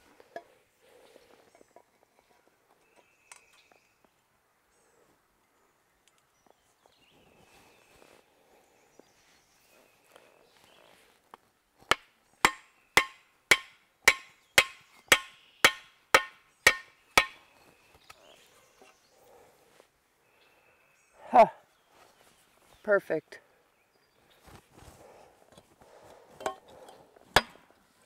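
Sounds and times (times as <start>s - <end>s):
strikes on wooden handle: 11.9s - 17.4s.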